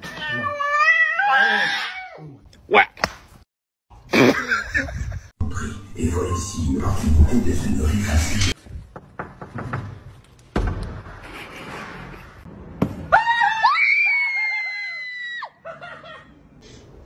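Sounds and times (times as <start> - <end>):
knocks and rustles: 8.6 - 12.2.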